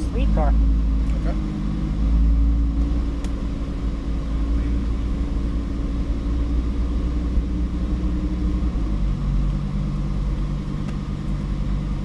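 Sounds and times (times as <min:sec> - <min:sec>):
car engine at low revs: 0:00.0 - 0:12.0.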